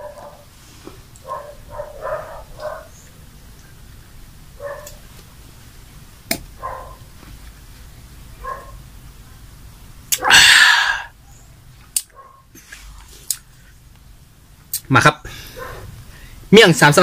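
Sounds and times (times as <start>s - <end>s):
man sneezing: 10.1s - 11.1s.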